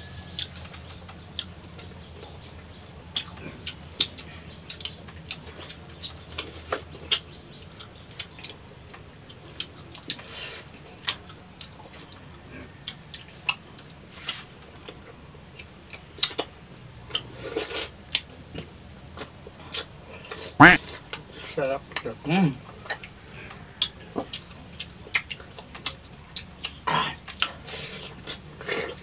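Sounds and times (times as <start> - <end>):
mouths sucking and chewing fruit: 15.6 - 21.6, 23.8 - 29.0.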